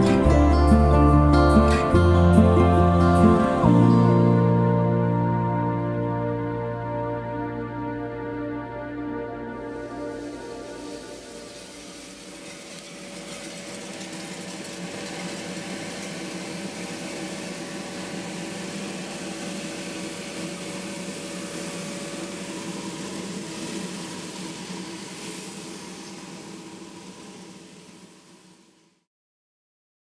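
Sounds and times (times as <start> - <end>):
fan whirring: 0.0 - 29.0
roasted beans churning: 10.0 - 28.5.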